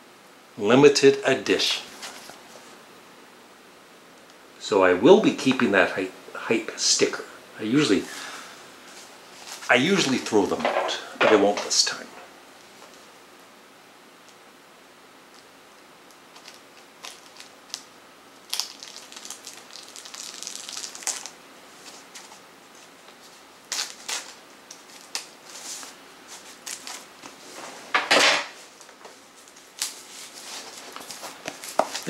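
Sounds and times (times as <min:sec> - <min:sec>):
plastic wrapping crinkling: 0:16.2 - 0:27.6, 0:28.6 - 0:32.0.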